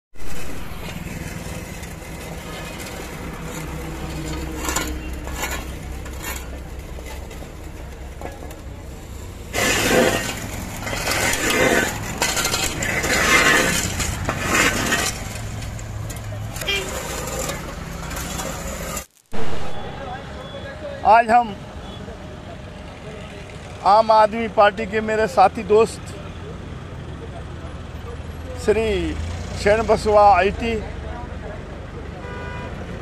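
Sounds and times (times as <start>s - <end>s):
shovels scraping road surface: 0.1s - 20.1s.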